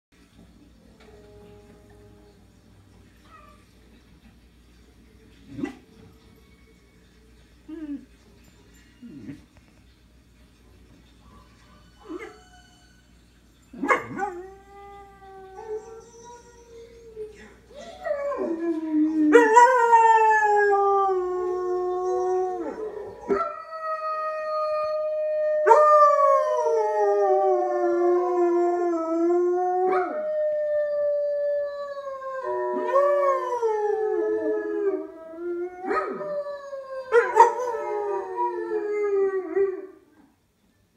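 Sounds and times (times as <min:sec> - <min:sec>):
dog howling on tv: 0:11.2 - 0:40.2.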